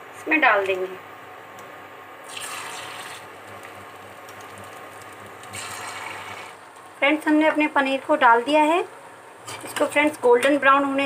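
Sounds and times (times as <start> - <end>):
hot oil sizzling: 2.2 - 8.5.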